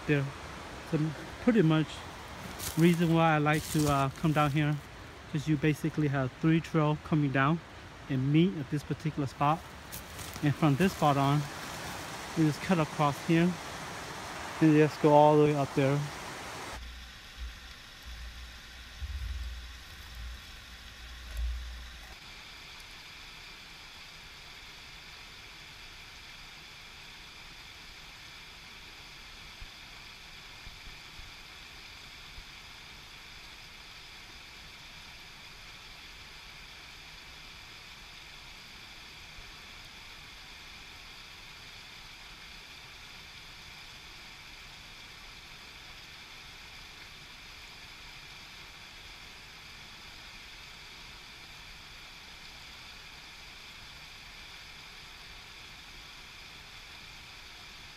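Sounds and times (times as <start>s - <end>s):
stream rushing over rocks: 0.0s - 16.9s.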